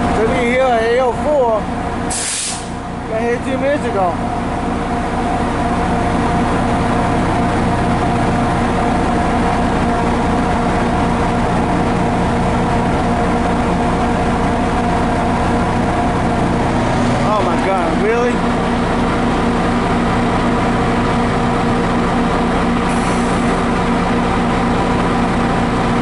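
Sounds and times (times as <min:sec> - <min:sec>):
diesel locomotive idling: 0:00.0 - 0:26.0
constant high whine: 0:02.8 - 0:26.0.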